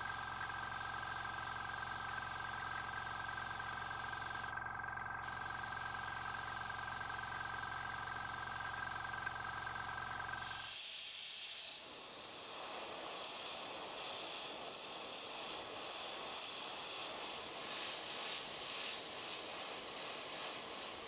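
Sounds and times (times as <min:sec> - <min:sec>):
faint hiss: 0:10.4 - 0:21.0.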